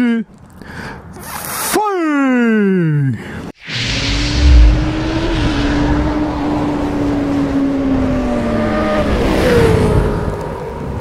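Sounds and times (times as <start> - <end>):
low boom: 3.6 - 7.3
whoosh: 3.6 - 7.8.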